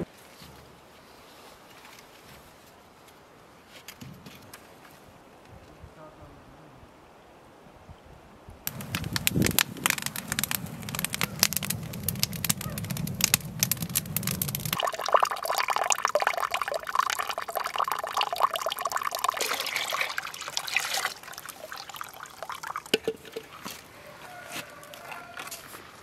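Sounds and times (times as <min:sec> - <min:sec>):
wood fire crackling: 0:08.6 - 0:25.7
water pouring into bucket: 0:08.7 - 0:23.7.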